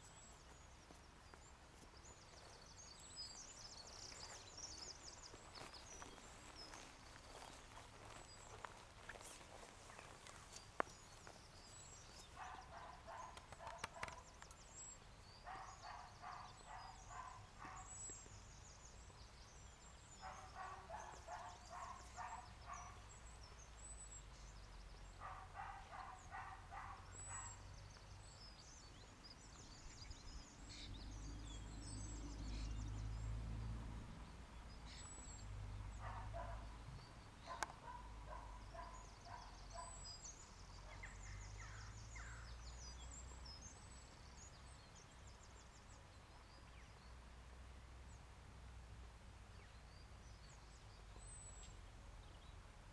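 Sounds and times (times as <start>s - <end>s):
small birds chirping: 0.0s - 47.3s
distant dog barking: 12.4s - 14.3s, 15.4s - 18.0s, 20.2s - 23.1s, 25.2s - 27.7s, 35.9s - 36.7s, 37.4s - 40.1s.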